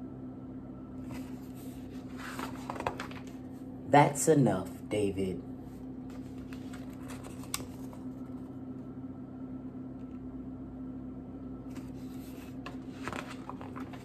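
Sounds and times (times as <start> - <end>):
low electrical hum: 0.0 - 14.0
book pages rustling: 1.0 - 3.5, 6.1 - 8.5, 11.7 - 14.0.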